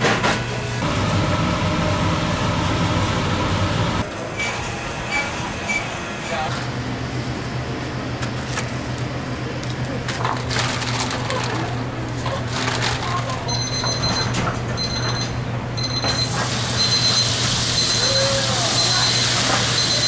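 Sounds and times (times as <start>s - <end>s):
low hum: 0.8s - 4.0s
high electronic beep: 13.6s - 19.2s, 19.8s - 20.0s.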